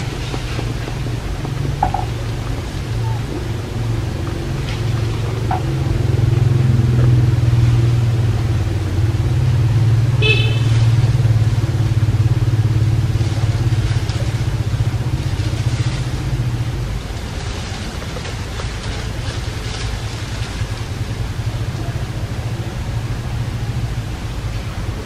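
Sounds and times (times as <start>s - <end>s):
motor engine droning: 0.0s - 25.0s.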